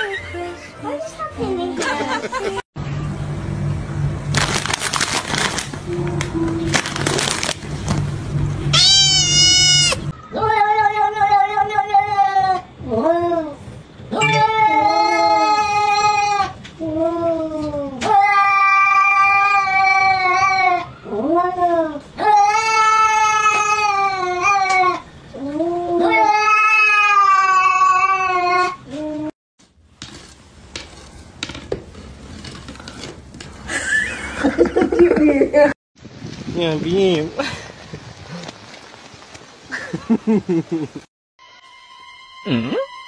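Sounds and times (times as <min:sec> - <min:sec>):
cat yowling: 0:08.7 - 0:12.6, 0:25.9 - 0:28.8.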